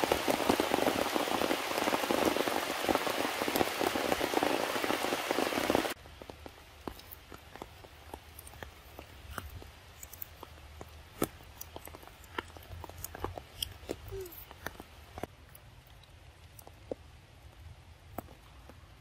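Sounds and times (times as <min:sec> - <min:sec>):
heavy rain on leaves: 0:00.0 - 0:07.9, 0:13.8 - 0:15.1.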